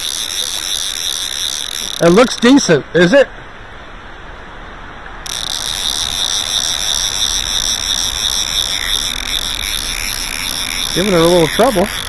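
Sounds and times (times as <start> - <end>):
river current running: 0.0 - 12.0
high-pitched buzz: 5.2 - 12.0.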